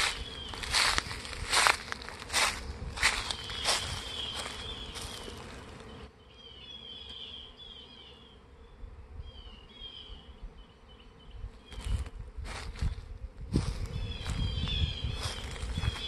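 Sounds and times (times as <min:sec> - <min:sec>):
footsteps: 0:00.0 - 0:05.9, 0:11.7 - 0:16.0
bee swarm humming: 0:00.0 - 0:16.0.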